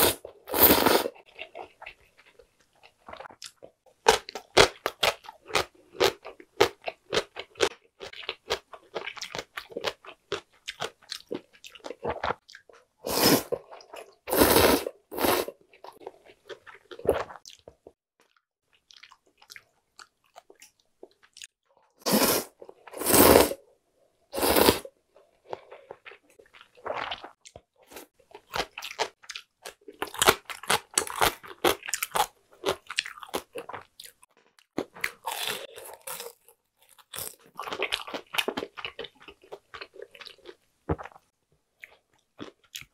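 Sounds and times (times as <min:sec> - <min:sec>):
loud slurping of noodles: 0:00.0 - 0:01.2, 0:13.0 - 0:13.6, 0:14.3 - 0:15.5, 0:22.0 - 0:23.6, 0:24.4 - 0:24.9
crunchy chewing of fried food: 0:00.0 - 0:23.6, 0:24.4 - 0:42.9.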